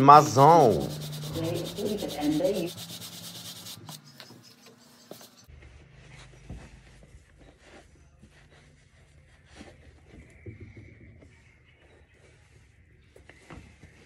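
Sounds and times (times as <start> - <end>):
brush scrubbing a sneaker: 0.3 - 5.5.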